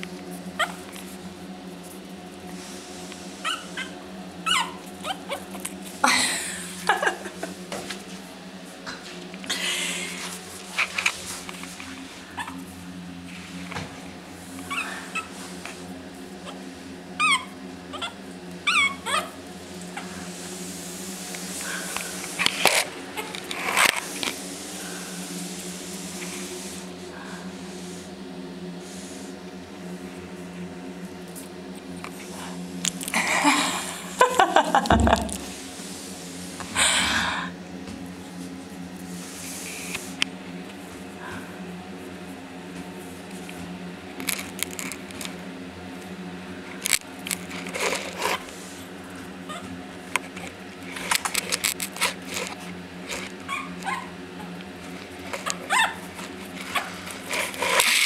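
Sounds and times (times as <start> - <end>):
puppy whimpering and yelping: 3.4 - 5.5, 12.4 - 12.6, 14.7 - 15.4, 17.2 - 19.4, 49.5 - 49.7, 53.5 - 54.5, 55.5 - 56.1
low hum: 33.1 - 37.6
claws clicking on tiled floor: 44.2 - 45.4, 50.1 - 54.0, 54.6 - 58.0.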